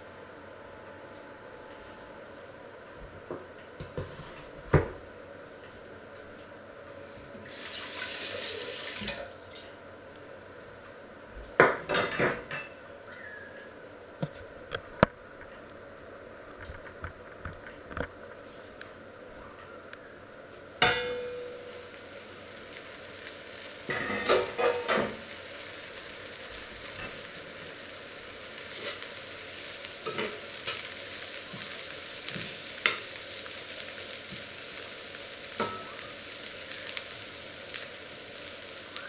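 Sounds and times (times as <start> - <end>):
metal pots and pans clattering: 11.7 - 12.8, 20.8 - 21.5, 23.9 - 25.2.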